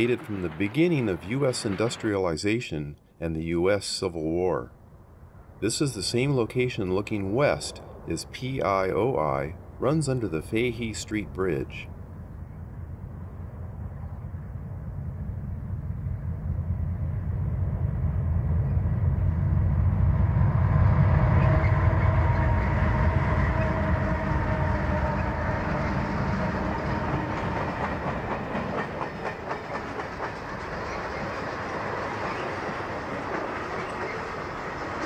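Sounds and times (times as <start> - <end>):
train wheels clicking on rail joints: 0.0 - 2.2, 25.0 - 35.0
diesel locomotive engines rumbling: 0.0 - 35.0.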